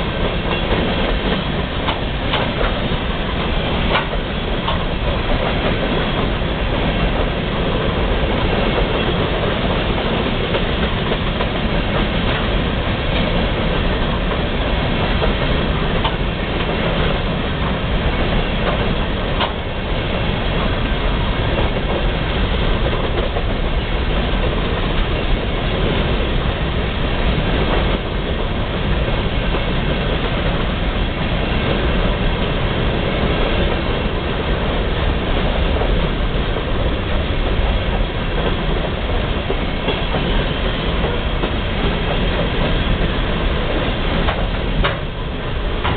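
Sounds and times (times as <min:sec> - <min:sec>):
train wheels rumbling on rails: 0:00.0 - 0:45.9
wheel clacks: 0:00.1 - 0:20.7, 0:35.7 - 0:45.9.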